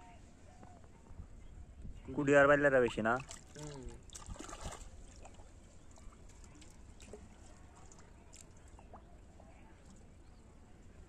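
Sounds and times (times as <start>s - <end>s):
water sloshing and dripping: 2.7s - 10.1s.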